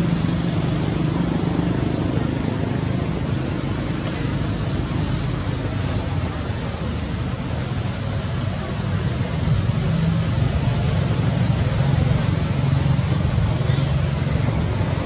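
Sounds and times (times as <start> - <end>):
low rumbling background noise: 0.0 - 15.0.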